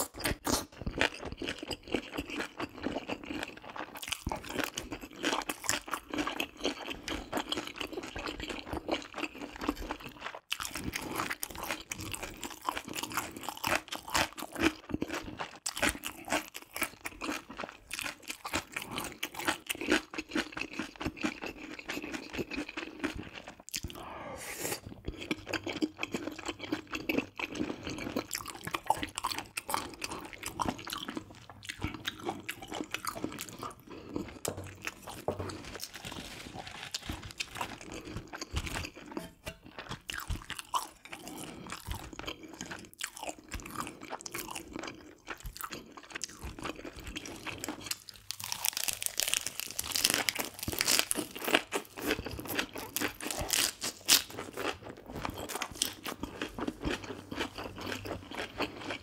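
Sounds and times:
wet chewing with crunches: 24.7 - 59.0
lettuce wrap crunching: 34.4 - 40.8, 47.3 - 58.0.

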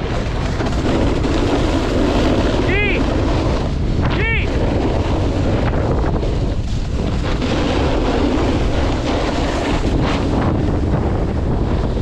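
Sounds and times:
snowboard sliding on packed snow: 0.0 - 12.0
wind rushing over microphone: 0.0 - 12.0.

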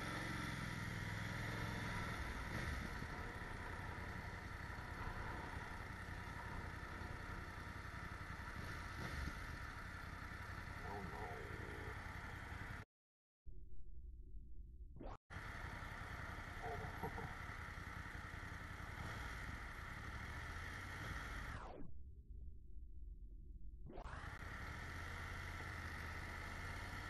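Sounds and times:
motorcycle engine running: 0.0 - 12.8, 15.3 - 21.7, 24.1 - 27.0
road noise: 0.0 - 12.9, 15.3 - 21.7, 24.1 - 27.0.

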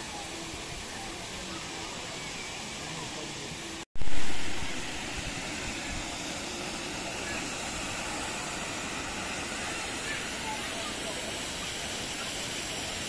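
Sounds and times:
faint voices: 0.0 - 3.8, 4.4 - 13.0
waterfall rushing over rocks: 0.0 - 13.0.

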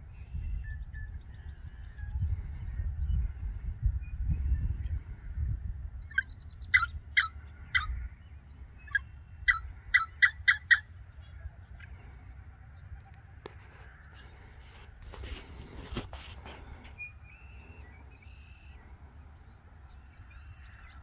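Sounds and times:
songbird calling harsh notes: 16.9 - 21.0.

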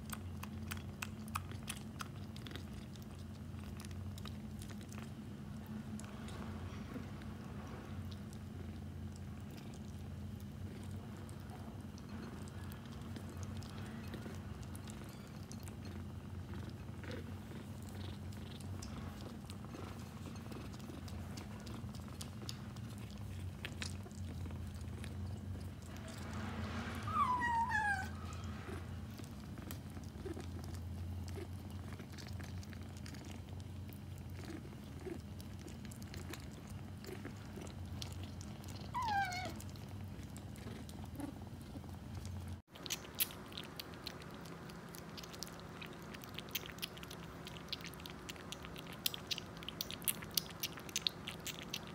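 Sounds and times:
kitten crunching kibble: 0.0 - 51.9
kitten purring: 0.0 - 51.9
kitten lapping water: 28.8 - 51.9.

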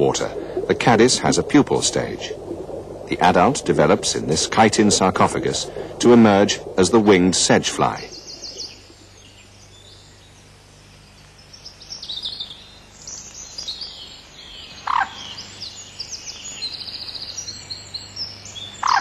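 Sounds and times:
faint low hum: 0.0 - 15.5
birds chirping and trilling: 6.2 - 10.5, 11.1 - 19.0.

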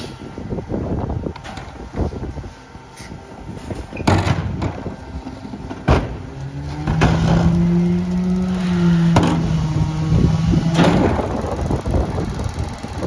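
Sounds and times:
garbage truck engine revving: 4.8 - 13.0.

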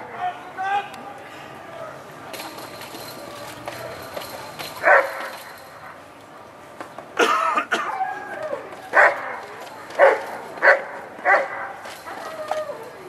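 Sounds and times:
dog barking: 4.8 - 5.3, 8.9 - 9.4, 10.0 - 11.8.

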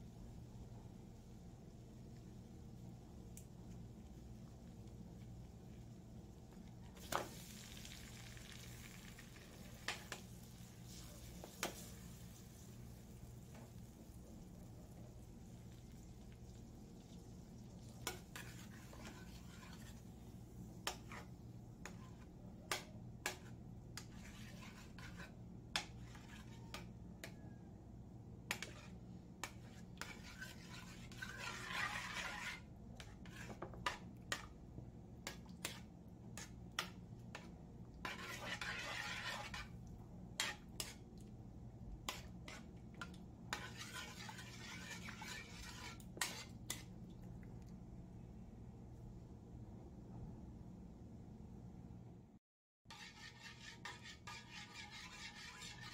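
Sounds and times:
metal spoon scraping a wok: 18.0 - 20.1, 20.8 - 27.4, 28.5 - 34.6, 35.2 - 39.8, 40.4 - 41.0, 42.1 - 42.7, 43.5 - 46.9, 52.9 - 55.9.

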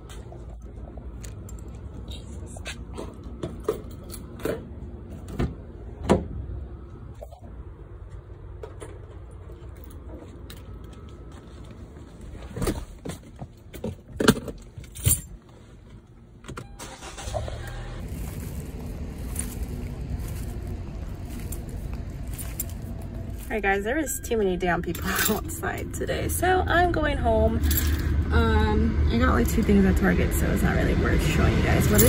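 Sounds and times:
low steady hum: 0.0 - 32.0
keys jangling: 21.3 - 23.5.

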